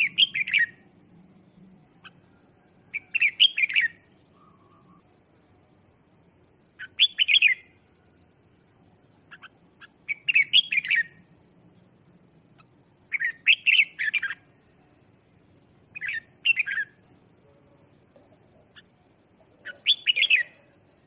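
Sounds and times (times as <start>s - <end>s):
bird warbling song: 0.0s - 0.9s, 1.6s - 5.1s, 6.8s - 7.7s, 9.2s - 11.2s, 12.5s - 14.5s, 15.9s - 17.0s, 18.0s - 21.0s.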